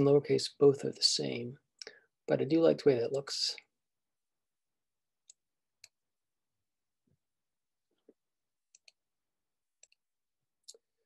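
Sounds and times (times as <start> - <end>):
faint mouse clicks: 8.1 - 9.0, 9.8 - 10.0.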